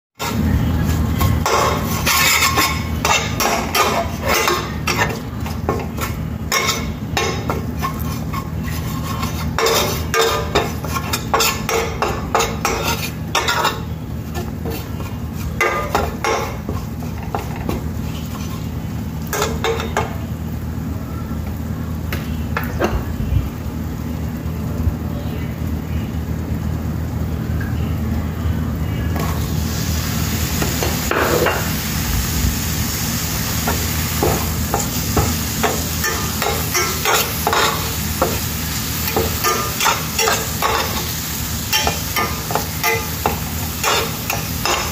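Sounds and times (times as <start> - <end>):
metal spatula scraping a steel pan: 0.2 - 18.7.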